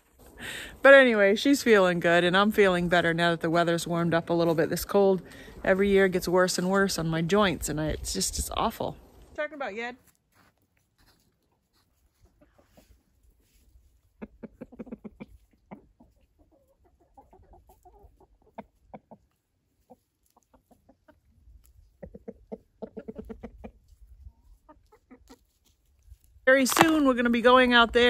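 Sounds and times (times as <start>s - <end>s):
chickens clucking: 11.0s - 26.0s.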